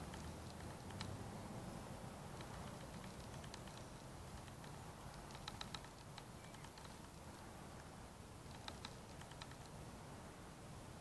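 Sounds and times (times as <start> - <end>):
bird tick calls: 2.4 - 7.1.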